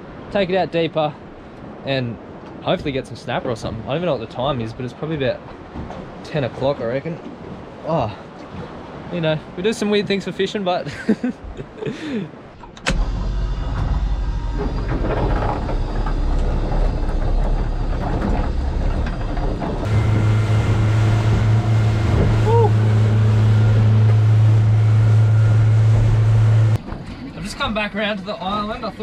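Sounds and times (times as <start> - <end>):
water rushing: 11.9 - 26.8
boat motor running: 12.6 - 26.9.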